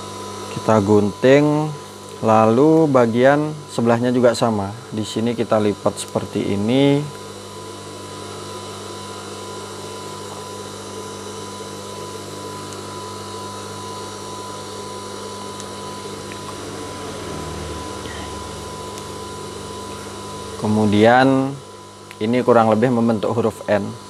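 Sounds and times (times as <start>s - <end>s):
sewing machine motor hum: 6.4s - 22.1s.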